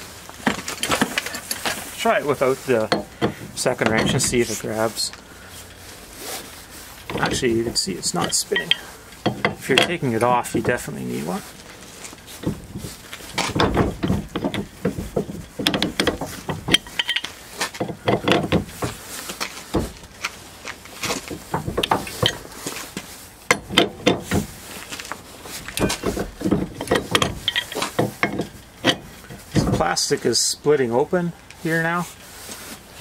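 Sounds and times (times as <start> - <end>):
wrenches clinking on metal nut: 0.4 - 2.0, 2.8 - 4.7, 7.1 - 11.3, 12.4 - 19.0, 21.5 - 22.5, 23.5 - 24.4, 25.7 - 30.1.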